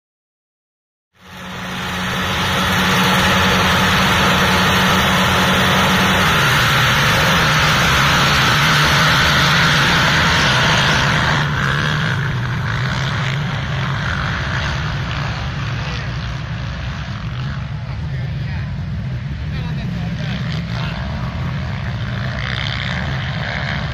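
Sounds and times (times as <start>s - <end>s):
quad engines racing: 1.2s - 23.9s.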